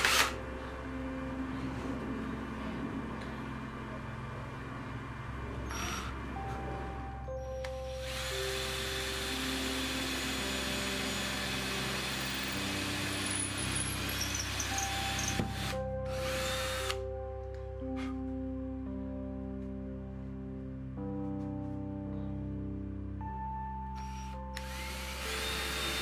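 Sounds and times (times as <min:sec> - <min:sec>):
cordless drill boring into wood: 0:00.0 - 0:00.4, 0:07.9 - 0:17.0, 0:24.0 - 0:26.0
soft background music: 0:00.0 - 0:26.0.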